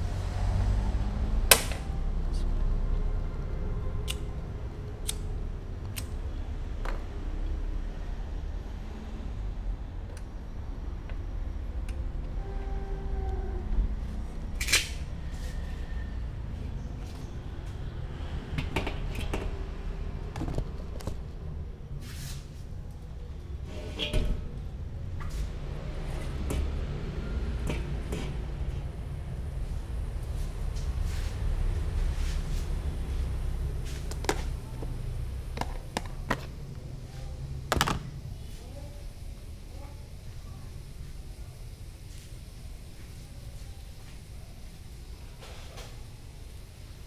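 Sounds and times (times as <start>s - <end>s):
steady low rumble: 24.4s - 45.3s.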